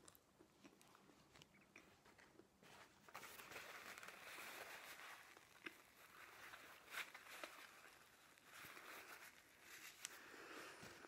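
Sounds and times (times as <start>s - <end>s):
person chewing: 0.0s - 2.6s
paper napkin rustling: 2.6s - 11.0s.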